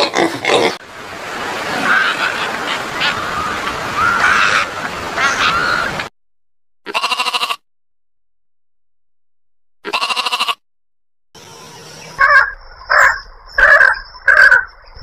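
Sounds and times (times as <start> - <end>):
fur seals calling: 1.7 - 6.0
short seal bleat: 6.9 - 7.6, 9.8 - 10.6.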